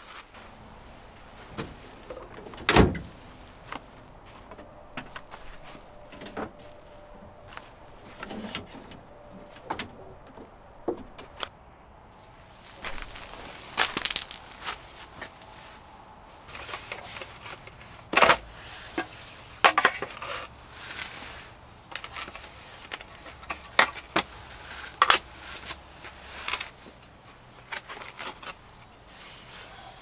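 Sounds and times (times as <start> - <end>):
fabric bag rustling: 12.2 - 15.8.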